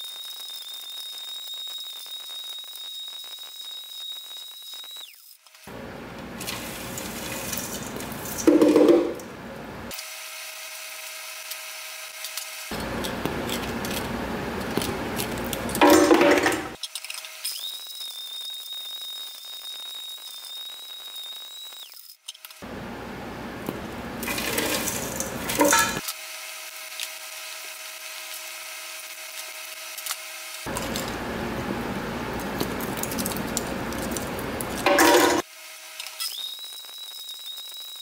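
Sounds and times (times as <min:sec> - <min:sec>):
blender grinding rattle: 0:06.4 - 0:09.2, 0:12.4 - 0:19.2, 0:24.2 - 0:26.0, 0:32.3 - 0:35.4
blender whining: 0:22.6 - 0:26.0.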